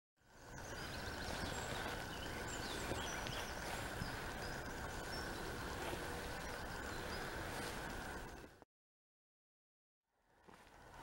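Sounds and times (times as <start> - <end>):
birds chirping and whistling: 0.3 - 8.5.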